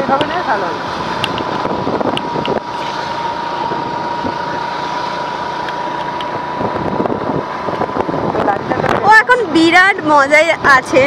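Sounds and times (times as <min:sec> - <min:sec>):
motor scooter running: 0:00.0 - 0:11.0
steady whine: 0:00.0 - 0:11.0
wind on microphone: 0:00.8 - 0:04.7, 0:06.2 - 0:09.4.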